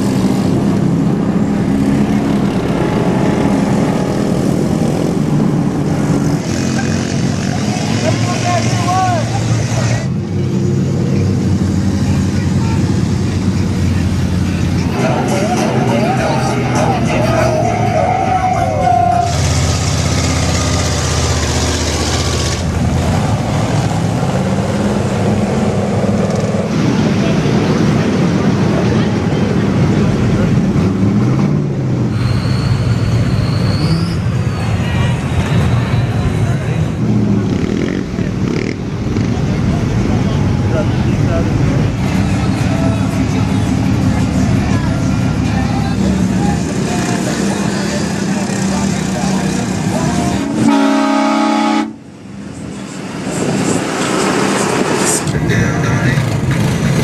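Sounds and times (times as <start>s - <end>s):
vehicle engine rising in pitch: 0.0s - 9.6s
truck engines droning under load: 0.0s - 57.0s.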